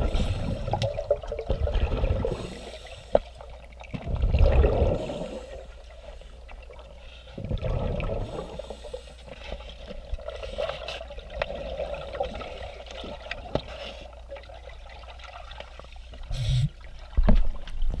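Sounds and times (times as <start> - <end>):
faint watery hiss: 0.0 - 0.9, 2.2 - 3.5, 16.3 - 16.9
regulator exhaust bubbles underwater: 0.0 - 6.0, 6.6 - 9.0.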